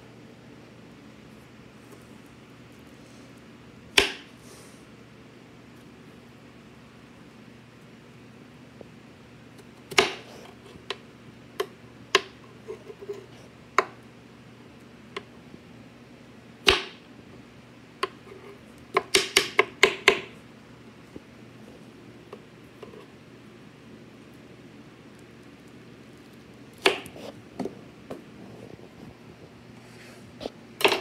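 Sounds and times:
knife chopping on wooden board: 0:04.0 - 0:04.3, 0:09.9 - 0:10.3, 0:16.6 - 0:17.0, 0:26.8 - 0:27.7.

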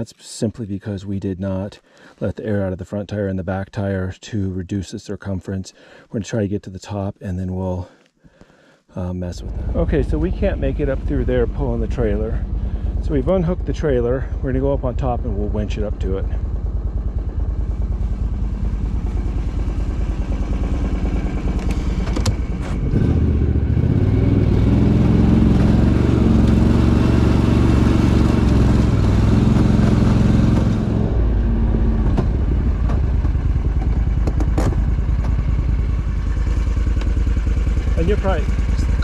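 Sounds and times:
vehicle engine revving: 0:09.4 - 0:39.0.

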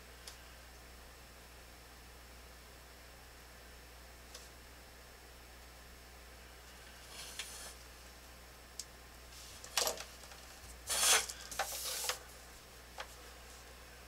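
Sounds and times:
plastic tools sliding on paper: 0:07.0 - 0:07.8, 0:10.9 - 0:12.2.

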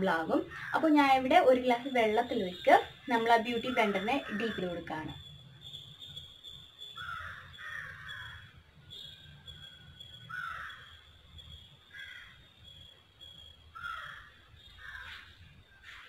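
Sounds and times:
bird calling harshly: 0:06.9 - 0:08.4, 0:10.2 - 0:10.9, 0:13.8 - 0:16.0.

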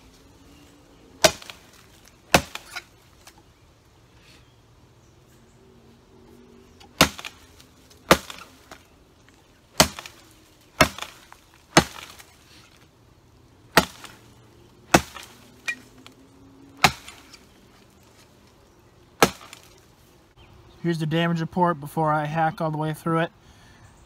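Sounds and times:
shovel chopping into log: 0:01.2 - 0:03.4, 0:06.8 - 0:08.9, 0:09.8 - 0:12.4, 0:13.7 - 0:14.2, 0:14.9 - 0:16.2, 0:16.8 - 0:17.5, 0:19.2 - 0:19.8.

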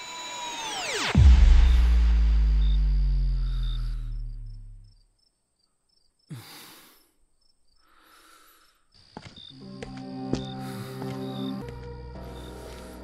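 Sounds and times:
deep bass boom: 0:01.2 - 0:04.8
faint cricket chirps: 0:01.5 - 0:11.6.

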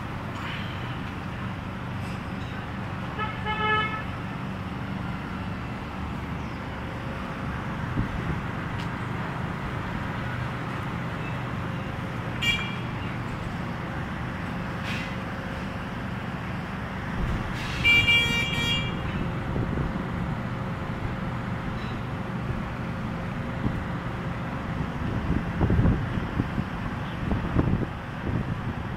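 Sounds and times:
street traffic rumble: 0:00.0 - 0:28.9
vehicle horn tooting: 0:03.2 - 0:04.1, 0:12.4 - 0:12.9, 0:17.8 - 0:19.0.

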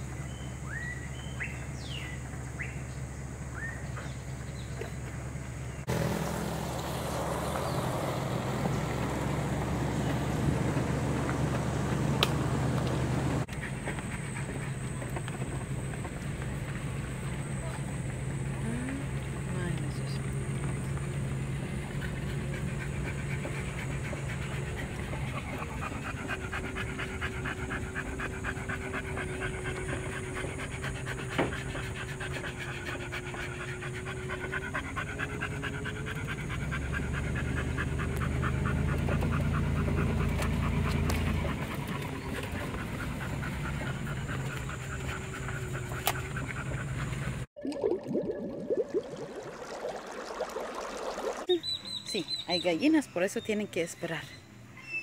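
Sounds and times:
vehicle engine drone: 0:00.0 - 0:47.5
road noise: 0:00.0 - 0:47.6
dog panting: 0:08.6 - 0:47.5.

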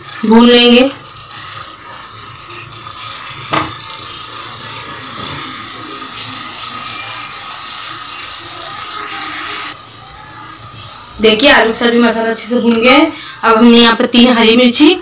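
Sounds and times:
spatula scraping a pan: 0:00.0 - 0:09.8
curry frying in a pan: 0:00.0 - 0:14.8.

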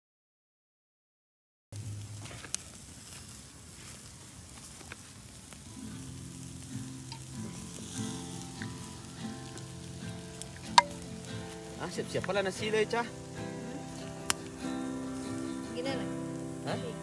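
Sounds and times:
campfire crackling and hissing: 0:01.7 - 0:17.0
soft background music: 0:05.7 - 0:17.0.

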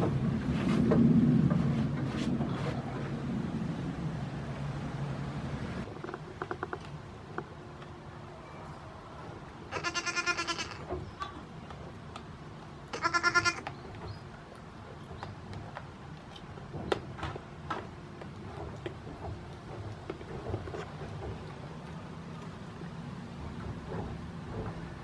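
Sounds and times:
young goat bleating: 0:09.7 - 0:11.4, 0:12.9 - 0:13.7.

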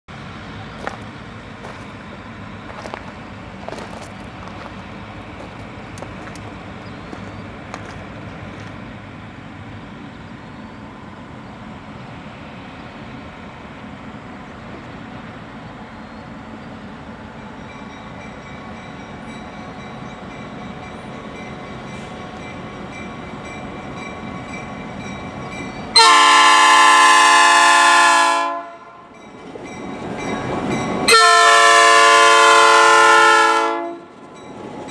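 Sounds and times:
train rumble: 0:00.1 - 0:34.9
locomotive air horn blast: 0:26.0 - 0:29.0, 0:31.1 - 0:34.1.

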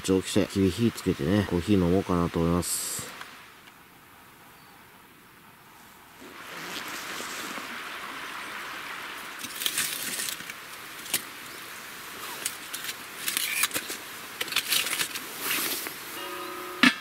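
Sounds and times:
steady hiss: 0:00.0 - 0:17.0
charred logs clattering: 0:09.4 - 0:16.0.

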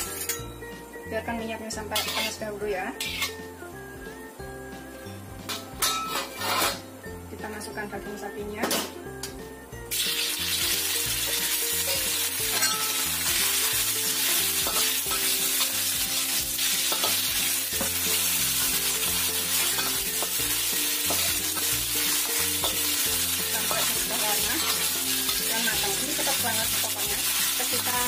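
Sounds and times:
metal spatula scraping wok: 0:01.8 - 0:03.5, 0:05.5 - 0:06.9, 0:09.9 - 0:28.0
meat sizzling in hot oil: 0:01.8 - 0:07.2, 0:09.8 - 0:28.0.

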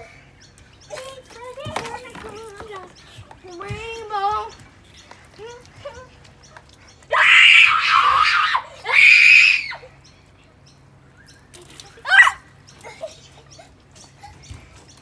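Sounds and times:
child screaming: 0:07.1 - 0:09.9, 0:12.0 - 0:12.5.

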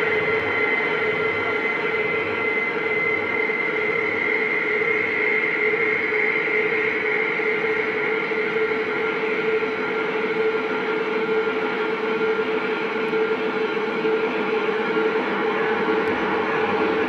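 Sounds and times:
droning soundscape with held tones: 0:00.0 - 0:17.0.

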